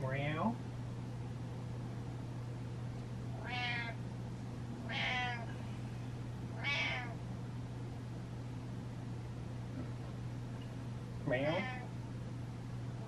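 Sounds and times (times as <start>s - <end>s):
cat meowing: 3.4s - 4.0s, 4.8s - 5.5s, 6.6s - 7.2s, 11.5s - 11.9s.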